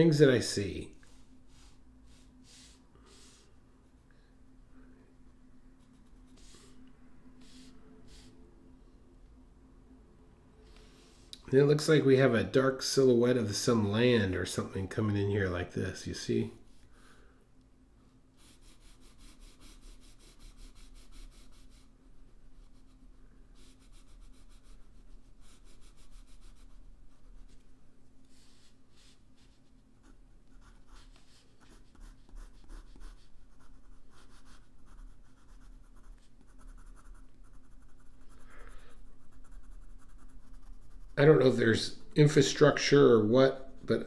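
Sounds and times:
colored pencil scratching on paper: 0:01.0 - 0:03.5, 0:05.8 - 0:06.8, 0:07.4 - 0:08.4, 0:18.4 - 0:27.6, 0:28.3 - 0:42.5.

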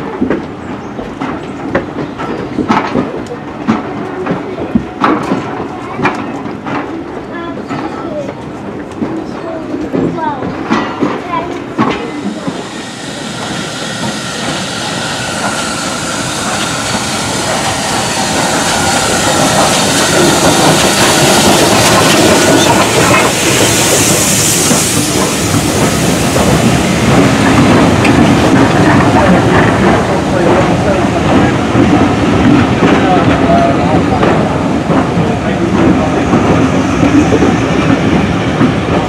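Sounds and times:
steam locomotive approaching: 0:00.0 - 0:39.0
steam hiss: 0:11.9 - 0:32.4.

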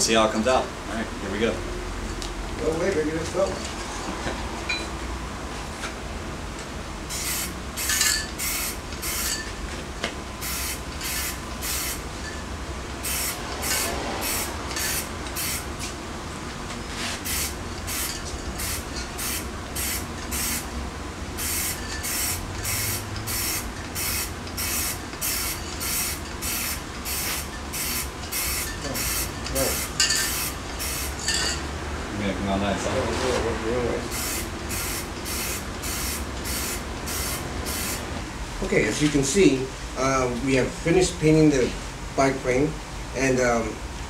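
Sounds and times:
spray paint can hissing: 0:07.1 - 0:09.4, 0:10.4 - 0:12.0, 0:13.0 - 0:15.7, 0:17.2 - 0:20.7, 0:21.4 - 0:31.2, 0:34.1 - 0:38.0.

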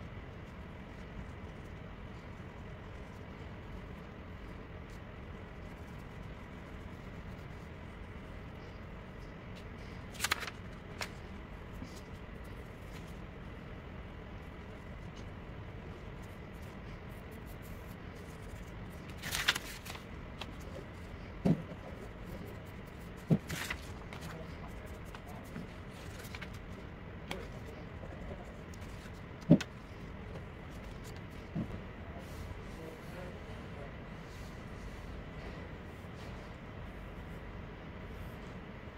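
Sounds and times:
paper rustling: 0:09.6 - 0:13.2, 0:16.2 - 0:31.6.

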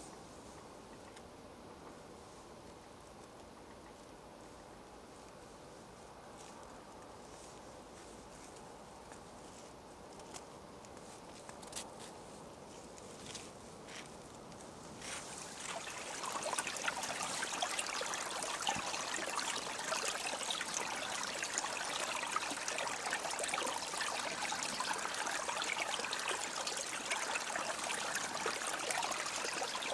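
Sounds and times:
stream babbling over stones: 0:15.0 - 0:29.9.

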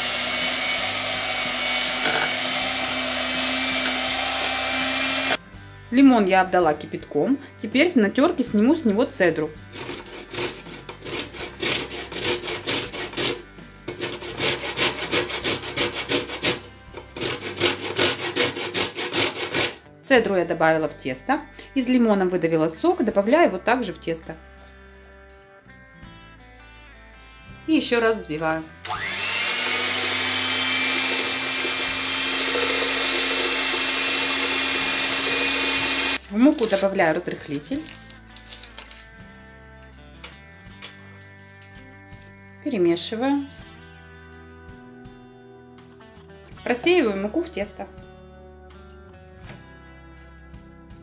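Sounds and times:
electric hand mixer whisking: 0:00.0 - 0:05.4, 0:09.7 - 0:19.8, 0:28.9 - 0:36.2
lemon rasping on metal grater: 0:09.7 - 0:19.8, 0:29.8 - 0:36.9.

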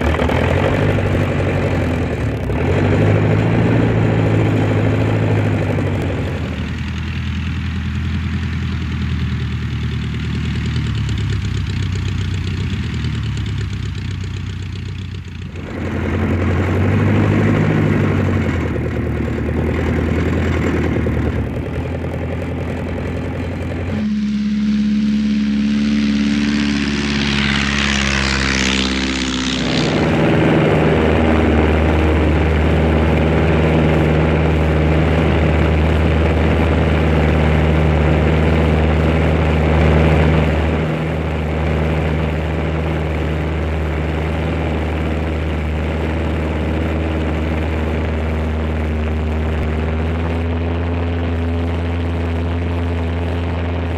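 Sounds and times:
propeller aircraft engine drone: 0:00.0 - 0:53.9
rush of air: 0:23.7 - 0:32.5.

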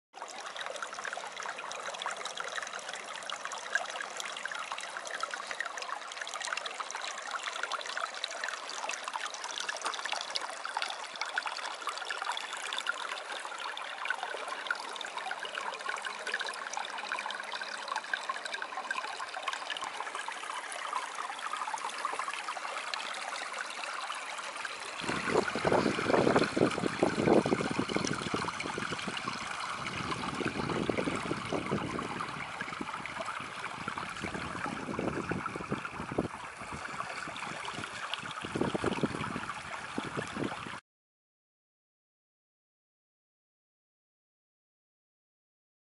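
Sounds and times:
water trickling among stones: 0:00.2 - 0:40.8
wind buffeting microphone: 0:25.0 - 0:40.8.

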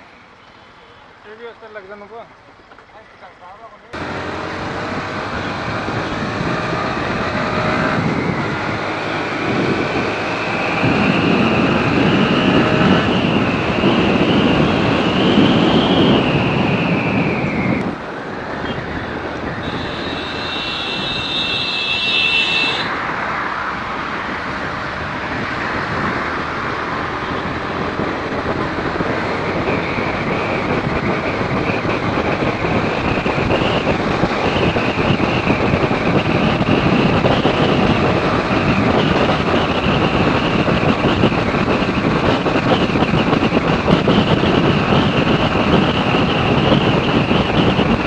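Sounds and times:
road traffic rush: 0:00.0 - 0:48.0.

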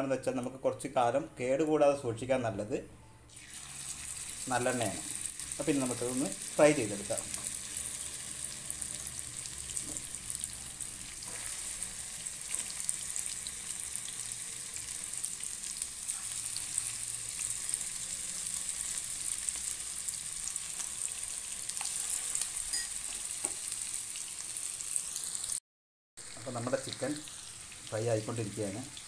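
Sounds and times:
chicken frying in oil: 0:03.4 - 0:25.6, 0:26.2 - 0:29.0.

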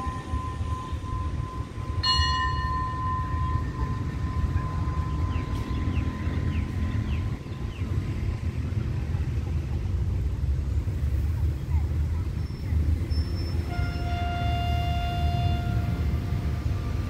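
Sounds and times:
station bell ringing: 0:00.0 - 0:08.0, 0:13.1 - 0:17.0
diesel locomotive idling: 0:00.0 - 0:17.0.

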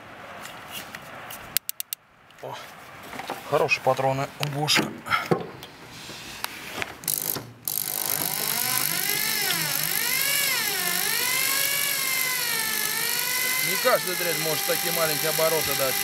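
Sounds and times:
power drill running at low speed: 0:07.1 - 0:16.0.

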